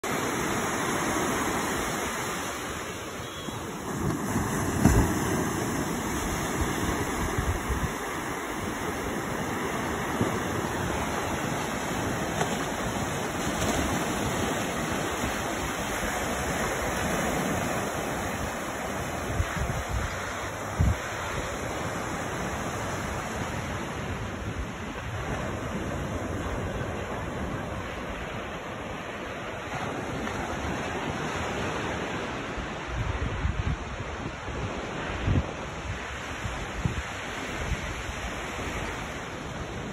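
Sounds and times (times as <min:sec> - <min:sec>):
ocean surf breaking: 0:00.0 - 0:39.9
wind bumping microphone: 0:03.9 - 0:21.6.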